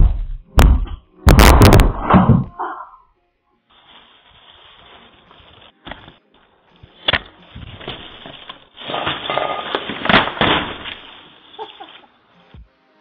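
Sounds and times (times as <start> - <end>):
knocks and thuds: 0.0 - 2.5.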